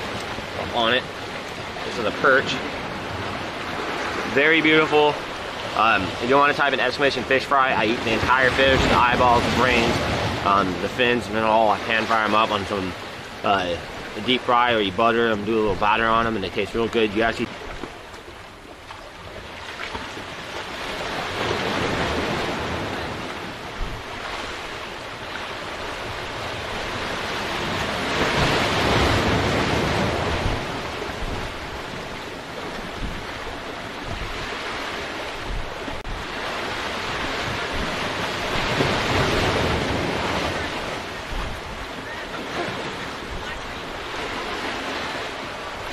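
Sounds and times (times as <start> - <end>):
waves breaking against rocks: 0.0 - 45.9
wind rumbling on microphone: 15.0 - 45.9.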